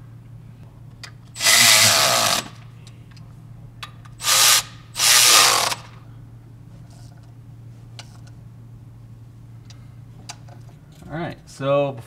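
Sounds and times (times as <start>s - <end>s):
cordless electric ratchet running: 1.4s - 2.6s, 4.2s - 6.0s.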